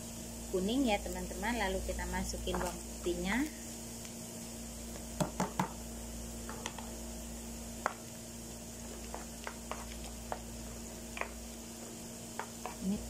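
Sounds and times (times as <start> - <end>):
steady low hum: 0.0 - 13.0
wooden spatula knocking in a pan: 5.2 - 5.8, 11.1 - 11.4, 12.3 - 12.8.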